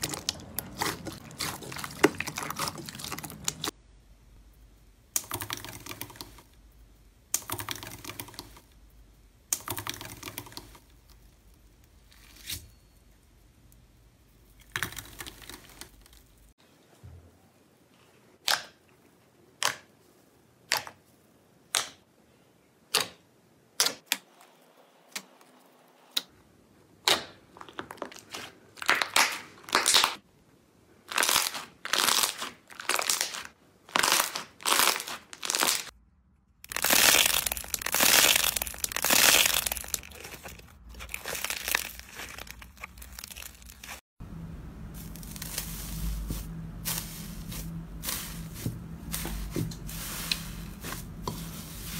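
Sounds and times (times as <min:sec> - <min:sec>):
crackly slime squishing: 0:00.0 - 0:03.8, 0:14.4 - 0:16.6, 0:31.0 - 0:36.0, 0:36.6 - 0:44.0
slime popping and squelching: 0:00.0 - 0:03.8, 0:31.1 - 0:36.0, 0:36.6 - 0:44.0
metallic foil crinkling: 0:36.7 - 0:44.0, 0:44.9 - 0:51.9.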